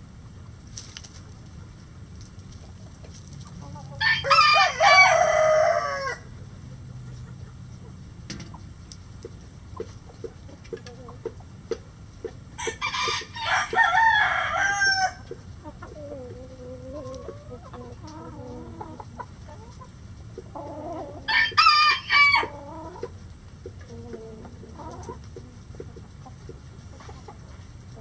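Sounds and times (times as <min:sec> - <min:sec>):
hens clucking softly: 0:01.1 - 0:28.0
rooster crowing: 0:04.0 - 0:06.3, 0:12.6 - 0:15.2, 0:21.0 - 0:22.8.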